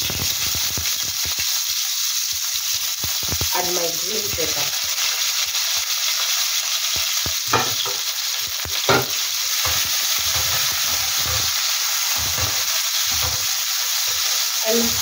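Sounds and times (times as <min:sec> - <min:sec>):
vegetables sizzling in oil: 0:00.0 - 0:15.0
wooden spoon scraping a pan: 0:08.7 - 0:15.0.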